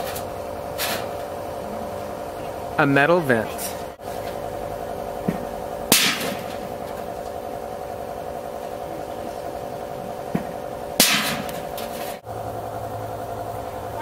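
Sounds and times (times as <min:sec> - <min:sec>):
baseball banging metal roof vent: 0:00.0 - 0:01.4, 0:05.2 - 0:07.8, 0:10.1 - 0:12.2
steady mechanical hum: 0:00.0 - 0:14.0.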